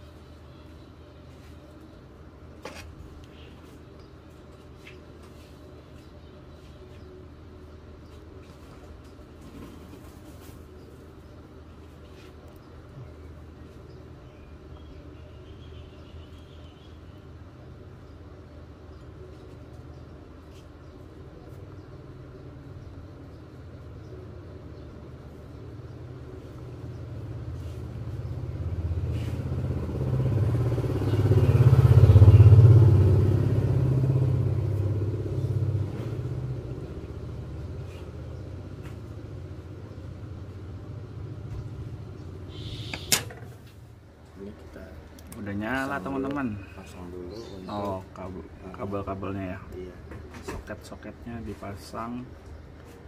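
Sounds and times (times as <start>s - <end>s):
vehicle engine rumble passing: 21.2s - 50.4s
sharp click: 42.9s - 43.4s.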